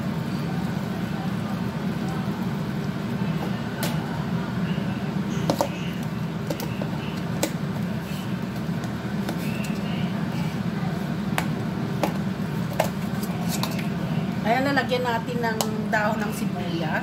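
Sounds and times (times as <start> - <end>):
low mechanical hum: 0.0 - 17.0
food squishing in a bowl: 4.6 - 14.4.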